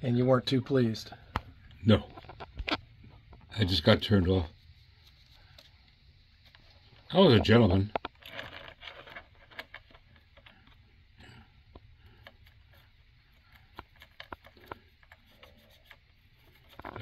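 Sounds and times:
fingertip rubbing on metal model: 0:12.0 - 0:17.0.

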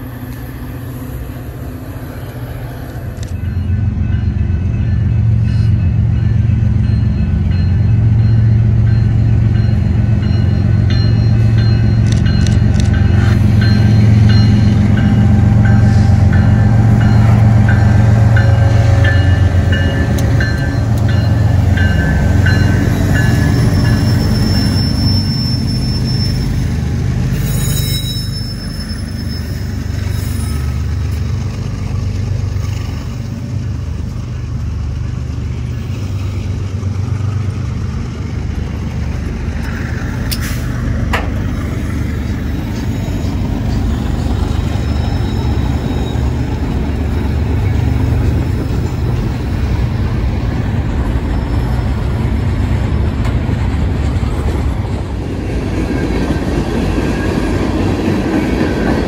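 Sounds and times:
diesel locomotives droning: 0:00.0 - 0:59.0
freight cars rumbling: 0:00.0 - 0:59.0
crossing bell dinging: 0:03.2 - 0:26.7.

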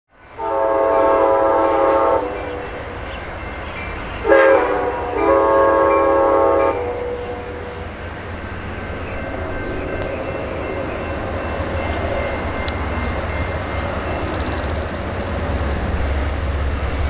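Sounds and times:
low rumble of approaching train: 0:00.1 - 0:17.0
train air horn blasts: 0:00.3 - 0:03.0, 0:04.2 - 0:07.9.

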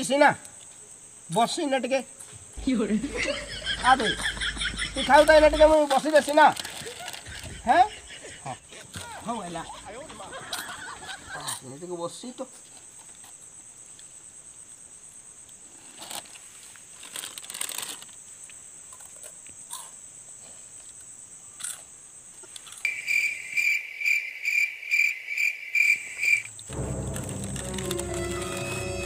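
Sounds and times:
high-pitched insect drone: 0:02.6 - 0:08.6, 0:22.8 - 0:29.0
plastic snack packet crinkling: 0:05.9 - 0:07.3, 0:15.8 - 0:18.2
loud repeating chirp: 0:22.9 - 0:29.0.

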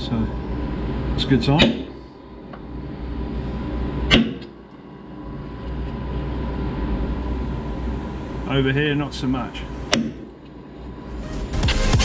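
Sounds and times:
low steady hum: 0:00.0 - 0:11.6
hammer striking metal punch: 0:01.6 - 0:02.0, 0:04.1 - 0:04.5, 0:09.9 - 0:10.3.

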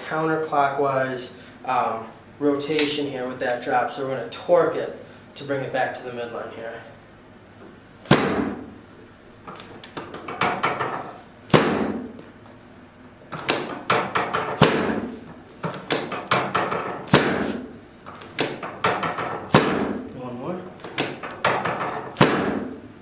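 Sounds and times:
drop table section snapping down: 0:13.3 - 0:20.0, 0:20.8 - 0:22.8.

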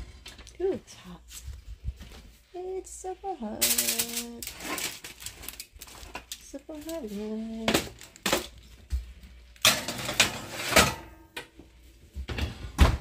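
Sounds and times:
metal rack and pans clanking: 0:03.6 - 0:08.5, 0:09.6 - 0:11.5.

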